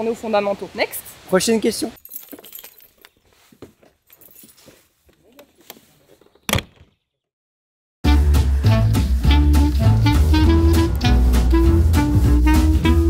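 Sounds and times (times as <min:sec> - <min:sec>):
door shutting with a bang: 0:06.5 - 0:06.9.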